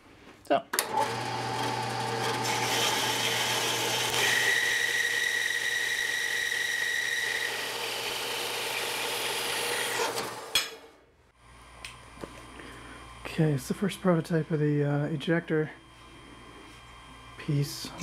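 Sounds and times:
motor hum: 0.8s - 10.6s
band saw cutting steel: 0.9s - 10.9s.

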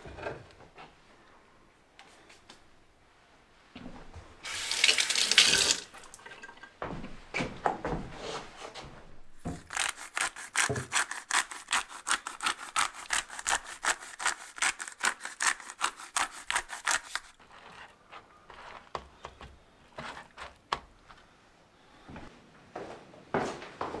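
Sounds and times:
spice mill grinding: 9.6s - 17.9s
faint scraping and tapping: 17.4s - 21.3s.

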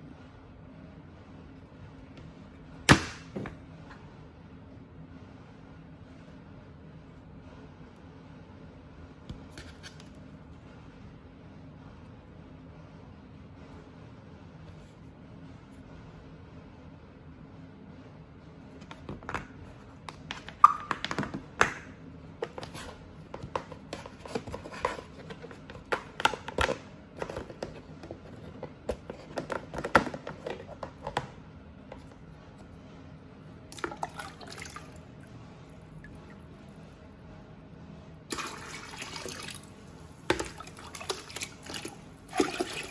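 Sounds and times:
plastic scoop clicks and knocks: 20.1s - 31.4s.

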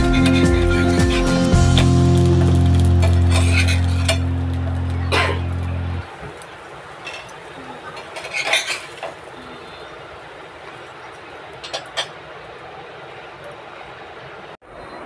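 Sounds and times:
food sizzling in oil: 0.0s - 10.9s
spatula scraping a frying pan: 0.2s - 1.3s, 8.0s - 9.2s.

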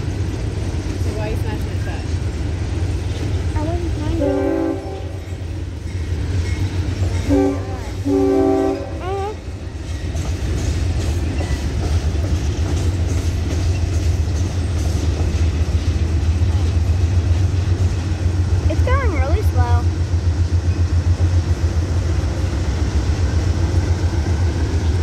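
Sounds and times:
freight train rolling past: 0.0s - 25.0s
locomotive horn blast: 4.2s - 5.3s, 7.2s - 9.4s.

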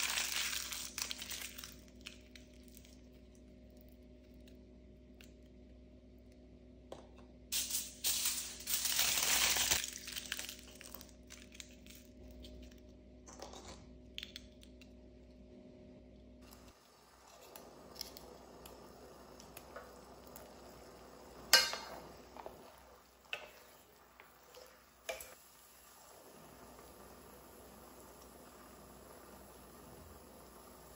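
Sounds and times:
aluminum foil crinkling: 0.0s - 4.5s, 7.6s - 12.9s.

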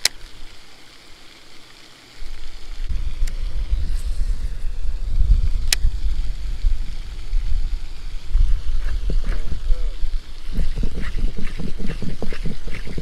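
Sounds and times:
sharp clicks: 0.0s - 0.4s, 5.6s - 5.9s
wind buffeting the microphone: 2.9s - 13.0s.

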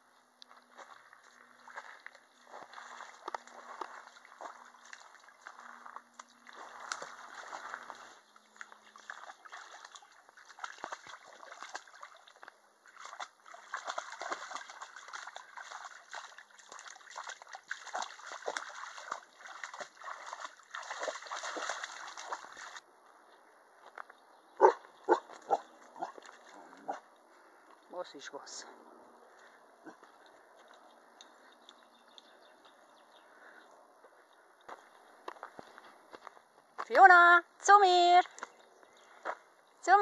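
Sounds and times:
dog splashing in water: 0.7s - 22.8s, 25.1s - 27.0s.

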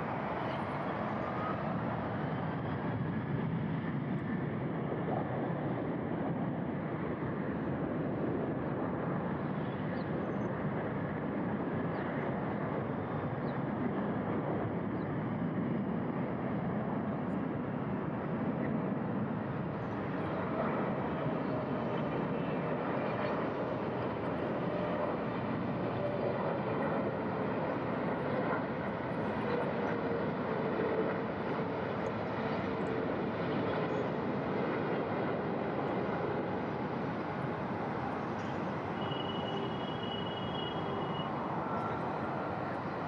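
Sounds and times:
jet engines rushing: 0.0s - 43.0s.

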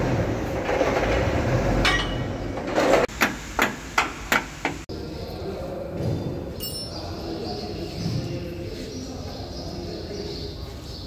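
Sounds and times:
hammer striking metal: 1.8s - 2.4s.

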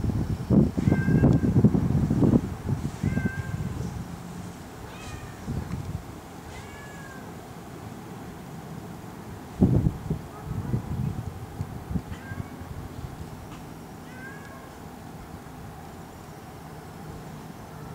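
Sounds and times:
cat meowing: 4.8s - 5.5s, 6.5s - 7.3s, 14.0s - 14.8s.

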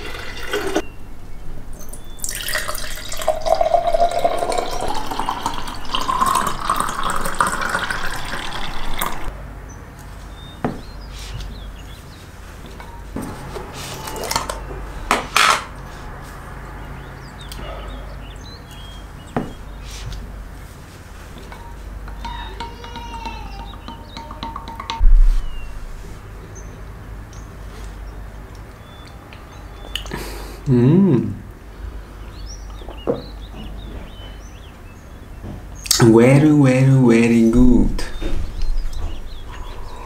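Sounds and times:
juice pouring into glass: 0.0s - 0.8s, 1.8s - 9.3s.

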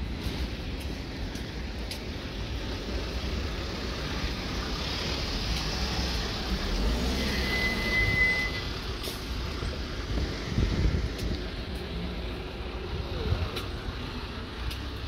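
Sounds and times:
traffic rumble: 0.0s - 15.0s
high-pitched beep: 7.2s - 8.7s
wind buffeting microphone: 9.4s - 14.5s.

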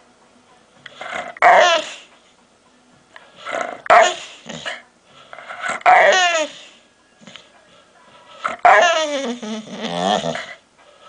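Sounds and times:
dog making pitched vocal noises: 1.0s - 2.0s, 8.4s - 10.6s.

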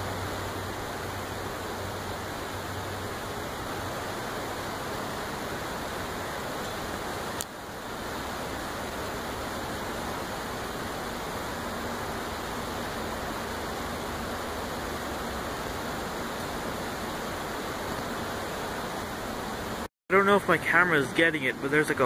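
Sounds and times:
steady rushing noise: 0.0s - 22.0s.

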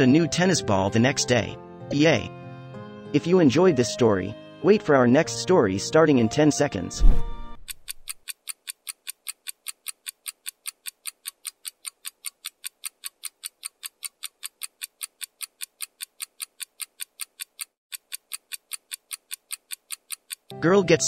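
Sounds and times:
fast clock ticking: 7.6s - 20.6s.

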